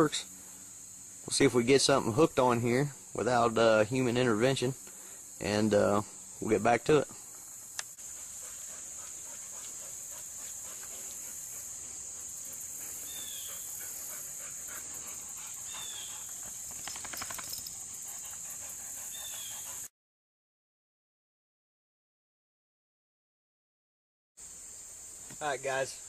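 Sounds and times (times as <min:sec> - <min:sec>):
insects droning: 0:00.0 - 0:19.9, 0:24.4 - 0:26.0
patter of clicks: 0:16.3 - 0:17.8.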